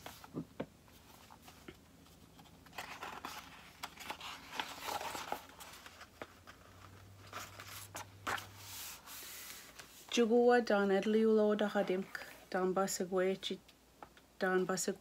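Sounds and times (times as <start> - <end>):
paper page rustling: 0.0 - 10.0.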